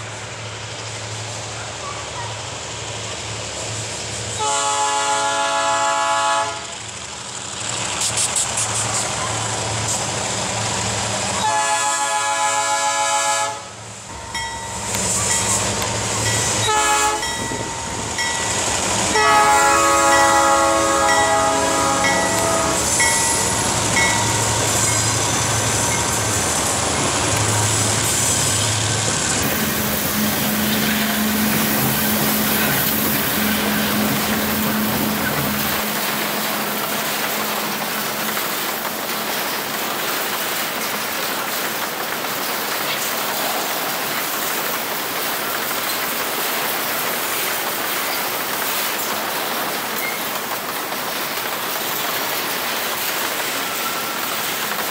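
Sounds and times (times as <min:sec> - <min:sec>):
locomotive engines rumbling: 0:00.0 - 0:54.9
locomotive air horn blasts: 0:04.4 - 0:06.8, 0:11.4 - 0:13.8, 0:16.6 - 0:17.4, 0:19.1 - 0:23.0, 0:30.0 - 0:32.5
train wheels rolling on rails: 0:06.4 - 0:13.0, 0:13.7 - 0:54.9.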